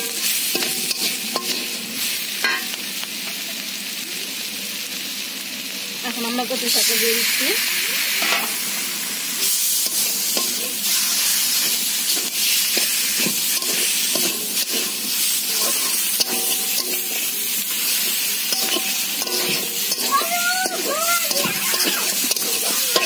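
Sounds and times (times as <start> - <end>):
food sizzling in a wok: 0.0 - 23.0
spatula scraping and knocking pan: 11.6 - 17.2, 18.0 - 23.0.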